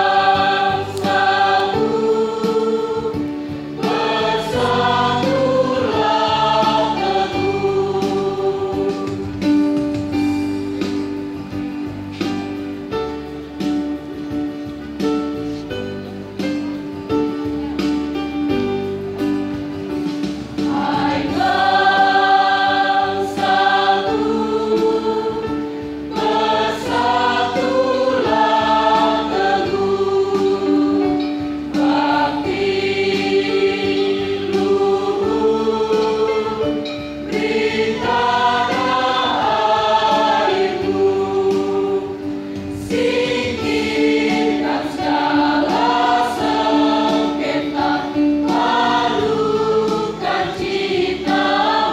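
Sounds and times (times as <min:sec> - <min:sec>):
choir singing: 0:00.0 - 0:09.6, 0:20.6 - 0:51.9.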